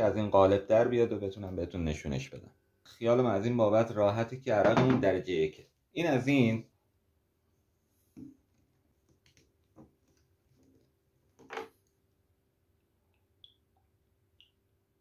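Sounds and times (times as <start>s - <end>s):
glass bottle clicks and knocks: 4.6s - 5.1s.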